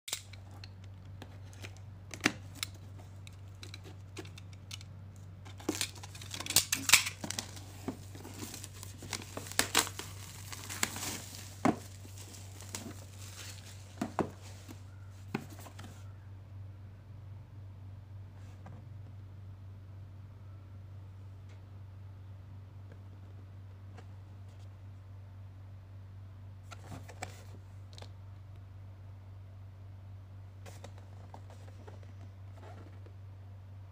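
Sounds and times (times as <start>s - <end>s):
low steady hum: 0.1s - 33.9s
plastic wrap crackling and tearing: 5.5s - 14.0s.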